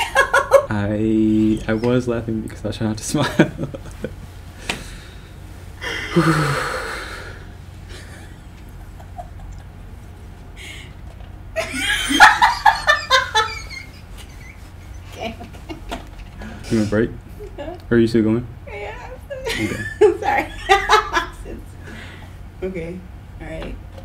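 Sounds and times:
woman laughing: 0:00.0 - 0:00.7, 0:05.8 - 0:06.8, 0:07.9 - 0:09.8, 0:11.6 - 0:16.2, 0:19.3 - 0:21.6
deep exhale: 0:04.6 - 0:07.6.

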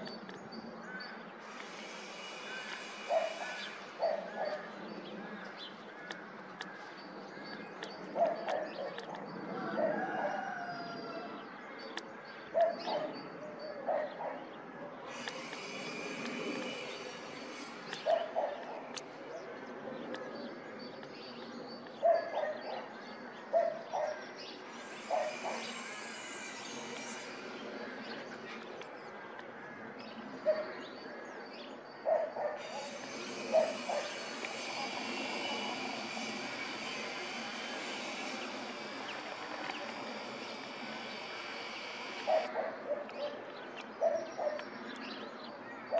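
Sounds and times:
outdoor background noise: 0:00.0 - 0:45.9
animal calls: 0:02.6 - 0:04.8
faint high hum: 0:32.6 - 0:42.5.

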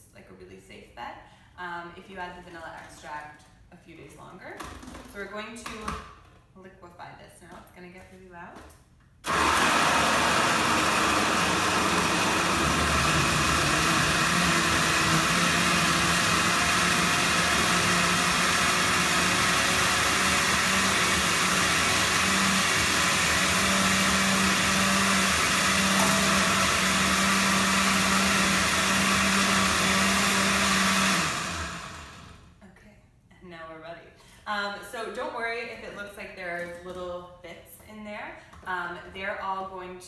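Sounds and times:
blender motor grinding: 0:09.2 - 0:32.5.

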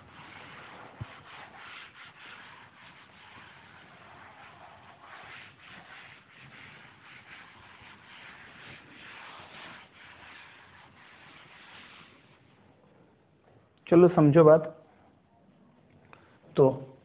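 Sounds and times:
duster wiping chalkboard: 0:00.0 - 0:12.6.

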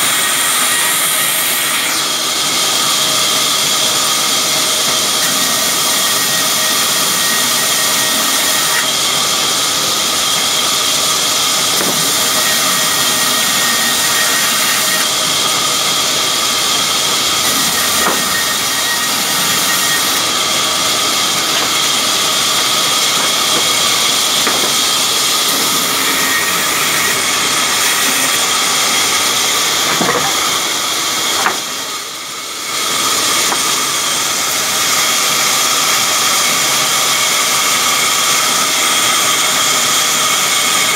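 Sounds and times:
band saw cutting wood: 0:00.0 - 0:40.9.

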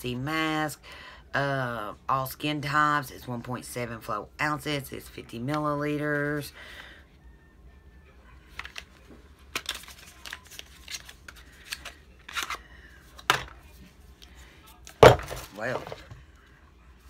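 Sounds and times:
packaging clicks and rustles: 0:08.5 - 0:13.5
object dropped with thud: 0:15.0 - 0:16.0.

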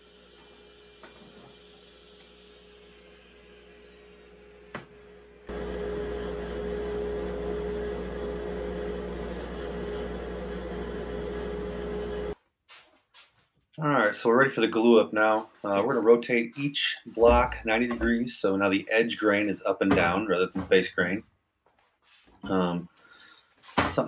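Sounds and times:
woodshop machine whirring: 0:00.0 - 0:12.4
faint shop hum: 0:00.0 - 0:12.8.

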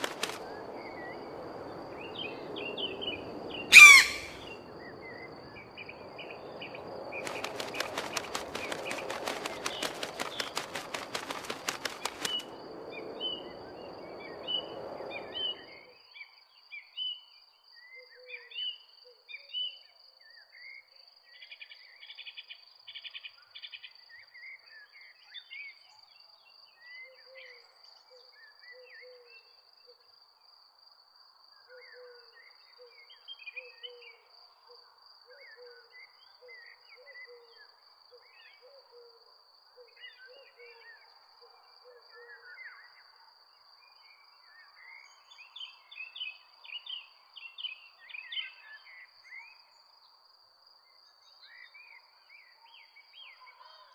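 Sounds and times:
small birds chirping: 0:00.0 - 0:01.2, 0:02.0 - 0:05.2, 0:06.2 - 0:12.5
low short bird call: 0:03.7 - 0:04.5.

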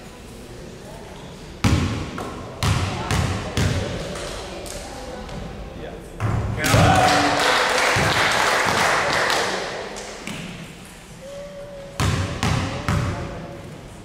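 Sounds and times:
crowd voices in a gym: 0:00.0 - 0:14.0
basketball bouncing: 0:01.6 - 0:03.9, 0:12.0 - 0:13.2.

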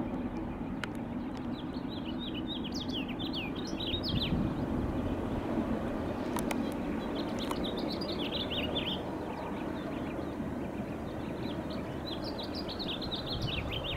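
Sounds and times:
steady low rumble: 0:00.0 - 0:13.9.

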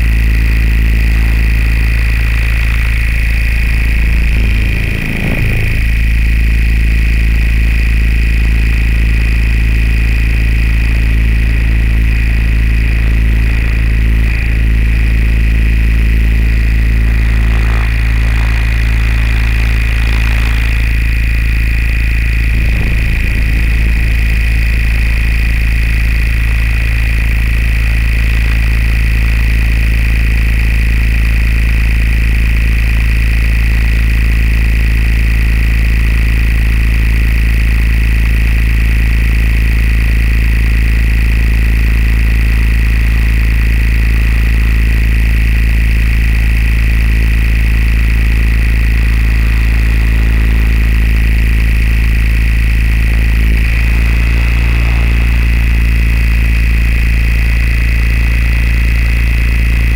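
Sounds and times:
aircraft engine drone: 0:00.0 - 0:08.7, 0:09.3 - 0:30.0, 0:46.8 - 0:59.9
constant high whine: 0:00.0 - 0:59.9.

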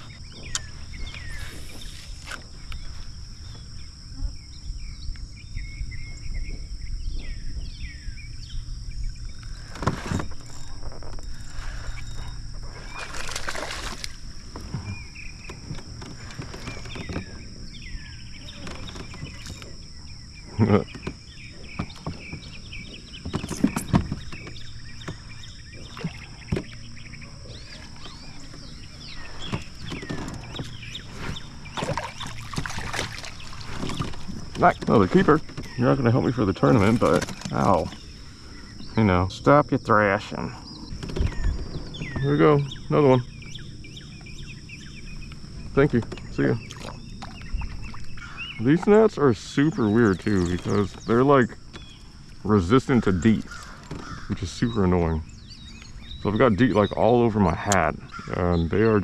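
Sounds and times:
birds chirping: 0:00.0 - 0:59.0
insect drone: 0:00.0 - 0:59.0
fish splashing in water: 0:12.9 - 0:14.2, 0:31.6 - 0:34.6.

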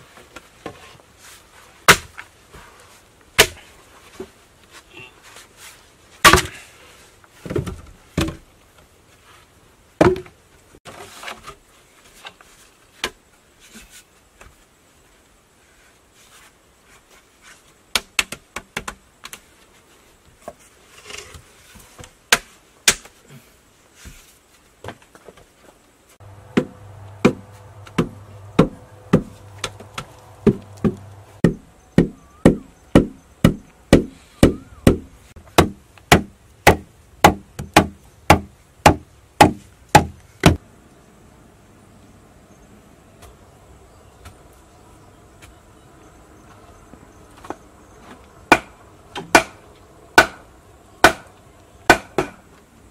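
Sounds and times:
bamboo poles knocking: 0:10.0 - 0:10.3, 0:26.2 - 0:40.6, 0:51.9 - 0:52.4.

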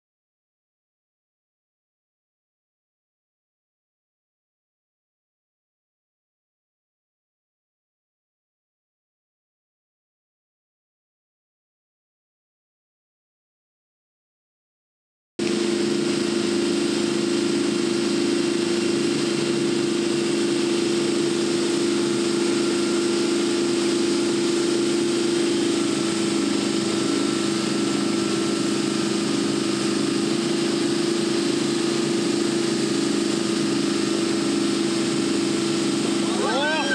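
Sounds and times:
boat engine drone: 0:15.4 - 0:36.9
rushing water hiss: 0:15.4 - 0:36.9.

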